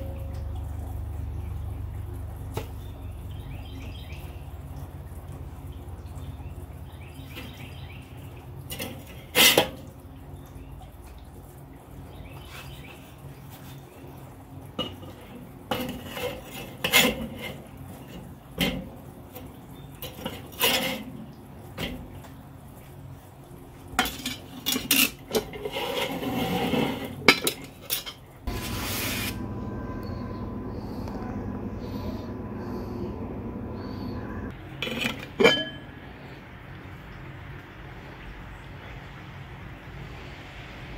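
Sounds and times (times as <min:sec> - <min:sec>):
steady low hum: 0:00.0 - 0:07.2, 0:28.4 - 0:40.9
metal spatula scraping grill grate: 0:08.7 - 0:09.8, 0:14.8 - 0:18.9, 0:20.0 - 0:21.2, 0:24.0 - 0:29.4.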